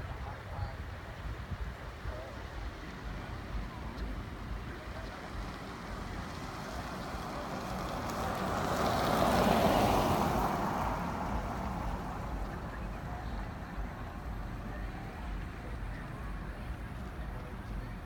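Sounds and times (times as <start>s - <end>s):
vehicle passing by: 4.7s - 18.0s.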